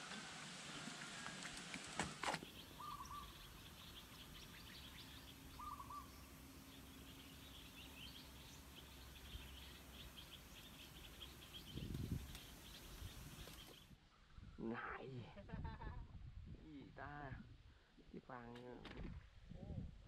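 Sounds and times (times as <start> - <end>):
wavering lower bird calls: 2.0 - 14.0
small birds chirping: 2.0 - 14.7.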